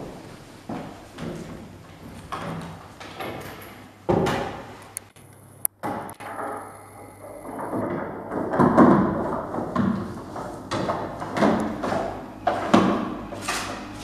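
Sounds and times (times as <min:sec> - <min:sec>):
knocks and thuds of wood: 0:07.5 - 0:13.1.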